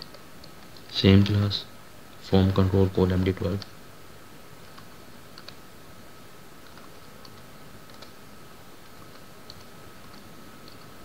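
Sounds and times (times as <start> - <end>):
steady background hiss: 0.0 - 11.0
keyboard typing: 4.6 - 5.6, 6.6 - 8.2, 8.8 - 11.0.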